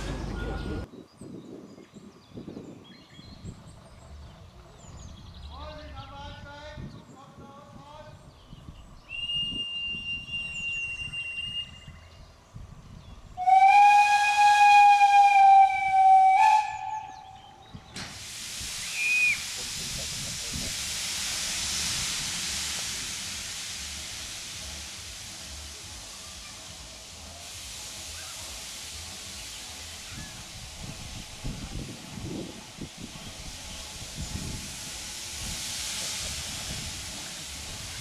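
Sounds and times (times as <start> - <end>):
steam locomotive whistle blasts: 9.1 - 12.0, 13.4 - 17.5
hiss of escaping steam: 13.4 - 38.0.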